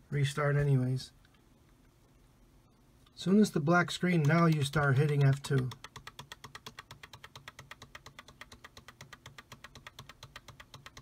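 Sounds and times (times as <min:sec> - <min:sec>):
keyboard key clicking: 0:04.2 - 0:11.0.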